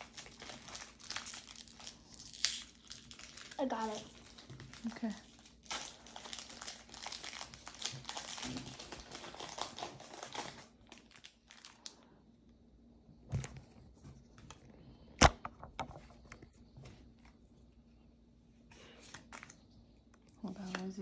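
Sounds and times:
foil wrapper crinkling and tearing: 0.0 - 12.1.

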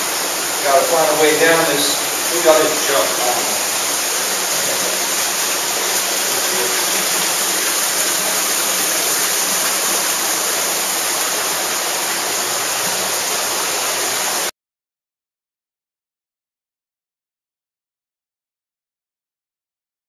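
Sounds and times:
underground water rushing: 0.0 - 14.5.

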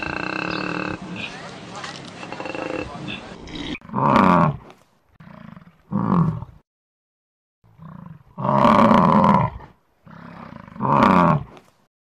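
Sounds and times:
animal bellowing: 0.0 - 1.4.

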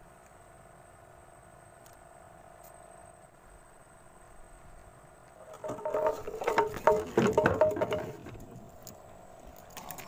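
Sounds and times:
knocks and clatter on wooden boat: 5.4 - 8.8.

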